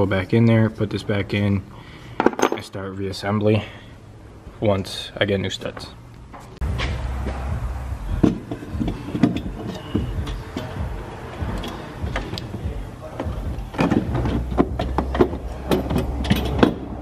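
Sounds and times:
metal clunks taps and scrapes: 0:08.2 - 0:17.0.

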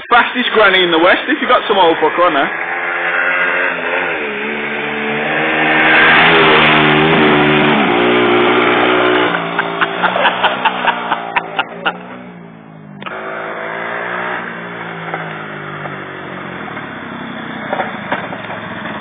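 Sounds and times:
small engine revving: 0:00.8 - 0:19.0.

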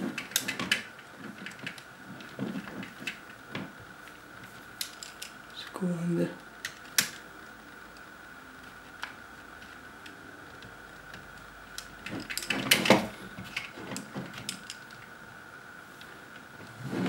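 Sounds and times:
screwdriver clicking and scraping plastic: 0:00.0 - 0:03.6
faint high whine: 0:00.0 - 0:17.0.

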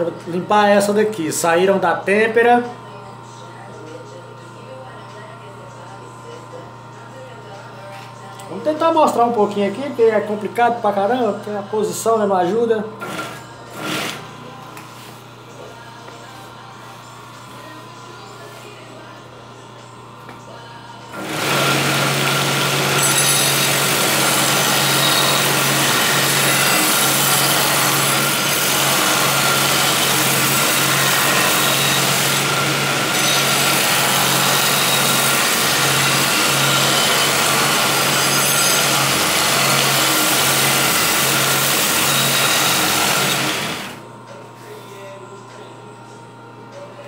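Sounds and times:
blade grinding on belt sander: 0:21.2 - 0:44.0.

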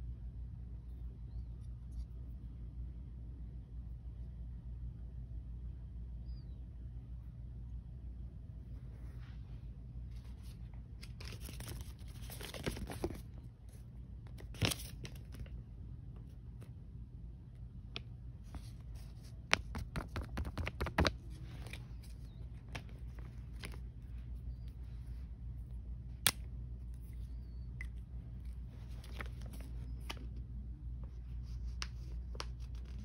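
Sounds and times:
paper rustling and crinkling: 0:10.1 - 0:15.6, 0:18.4 - 0:25.2, 0:28.4 - 0:30.5, 0:31.1 - 0:33.0.

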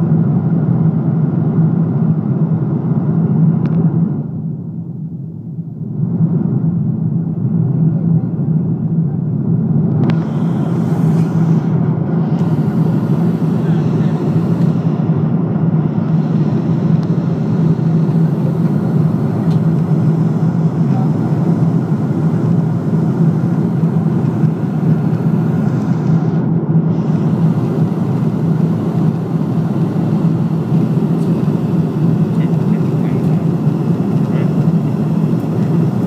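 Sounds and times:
aircraft cabin engine drone: 0:00.0 - 0:36.0
strong low hum: 0:00.0 - 0:36.0.

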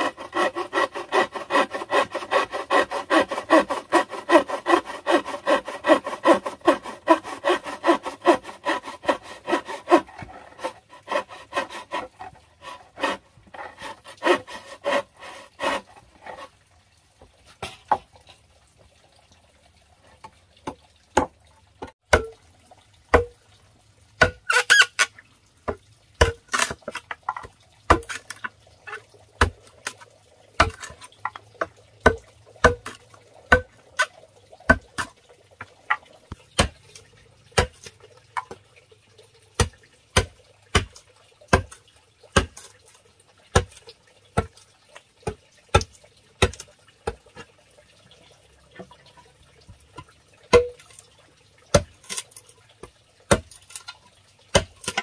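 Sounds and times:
machete chopping wood: 0:22.1 - 0:22.3, 0:23.1 - 0:23.3, 0:32.0 - 0:33.7, 0:36.6 - 0:36.8, 0:37.6 - 0:37.8, 0:42.4 - 0:42.6, 0:50.5 - 0:50.8, 0:53.3 - 0:53.6, 0:54.5 - 0:55.0.

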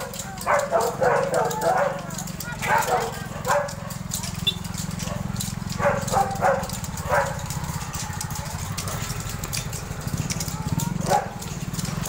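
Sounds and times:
dog barking: 0:00.0 - 0:04.2, 0:05.0 - 0:07.5, 0:11.0 - 0:11.4
small engine running: 0:00.0 - 0:12.0.

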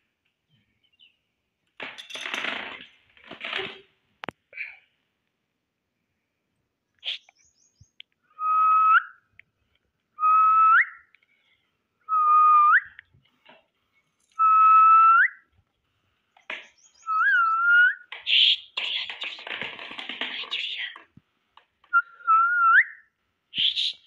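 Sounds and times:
person whistling: 0:12.1 - 0:13.0, 0:21.9 - 0:23.0.

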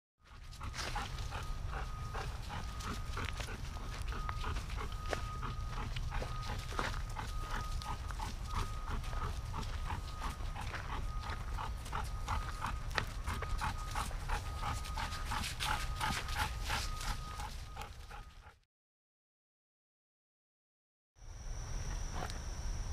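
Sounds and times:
dog panting: 0:00.3 - 0:18.6.

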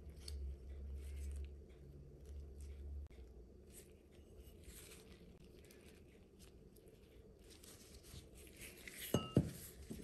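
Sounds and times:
low room hum: 0:00.0 - 0:10.0
gloves and paper towel rustling: 0:03.6 - 0:10.0.

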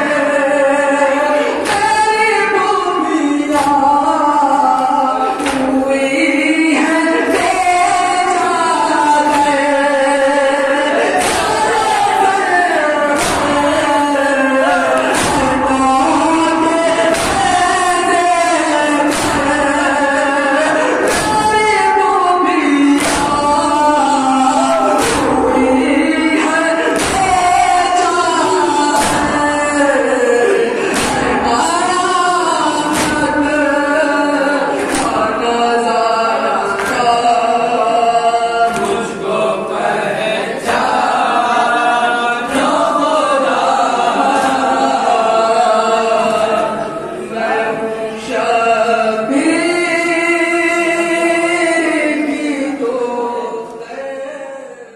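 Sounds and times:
men chanting together: 0:00.0 - 0:54.9
chest-beating strikes: 0:14.9 - 0:16.2, 0:24.7 - 0:25.8, 0:30.4 - 0:31.6.

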